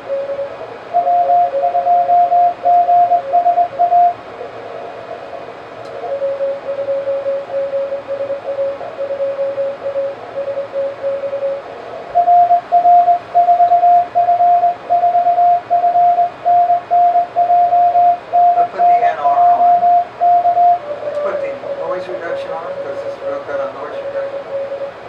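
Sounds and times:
faint low morse code tone: 0:00.0 - 0:04.2, 0:05.9 - 0:25.0
loud high morse code tone: 0:00.0 - 0:04.2, 0:06.0 - 0:25.0.

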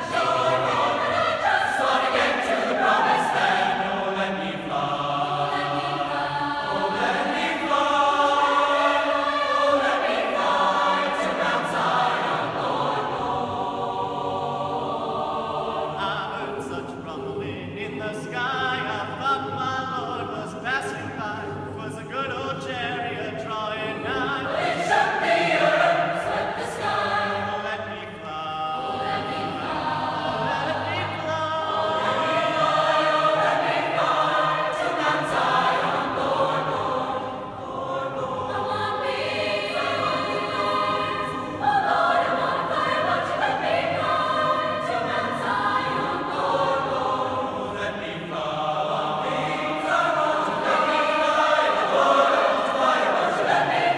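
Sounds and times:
mixed choir singing in harmony: 0:00.0 - 0:53.9.

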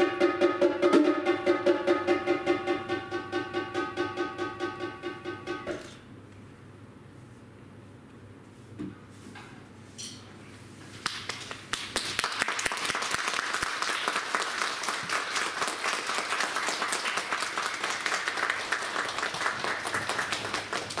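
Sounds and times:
audience applause: 0:11.0 - 0:21.0.

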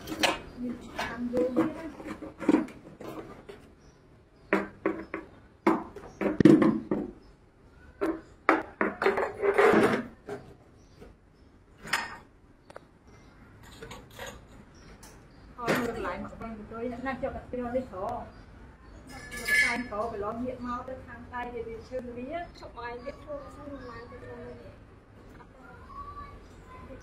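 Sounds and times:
steel rebar knocking and scraping: 0:08.0 - 0:10.5.

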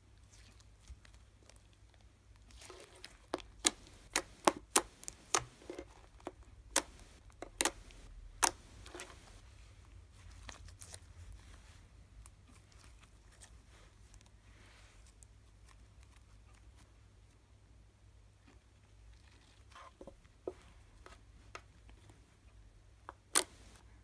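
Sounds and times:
slime popping and clicking: 0:03.4 - 0:05.5, 0:06.7 - 0:09.0.

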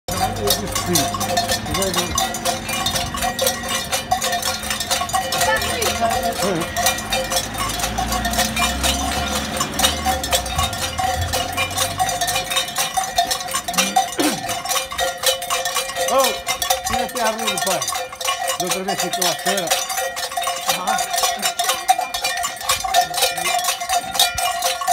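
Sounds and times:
metal cowbells clanking: 0:00.1 - 0:24.9.

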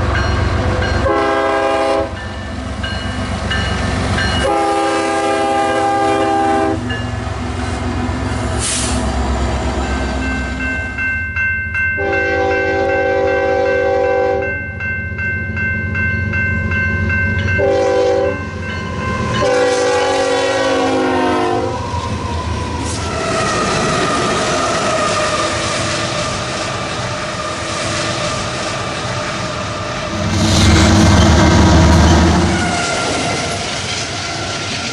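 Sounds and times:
rumble of passing train: 0:00.0 - 0:34.9
locomotive air horn: 0:01.0 - 0:02.2, 0:04.4 - 0:06.9, 0:12.0 - 0:14.5, 0:17.6 - 0:18.5, 0:19.4 - 0:21.8.

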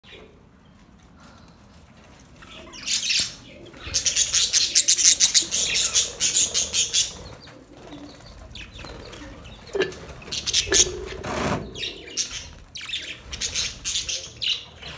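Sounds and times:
budgerigars chirping: 0:02.8 - 0:07.5, 0:08.6 - 0:14.9.

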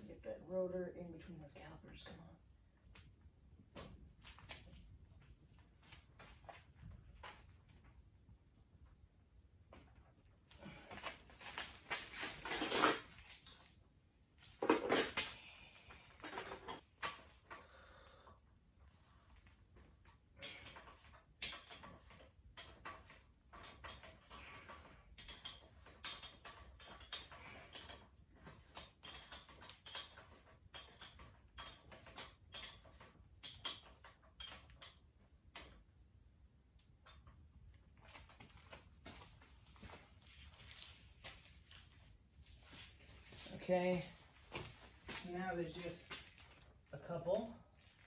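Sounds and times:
metal tools clattering: 0:11.4 - 0:13.7.

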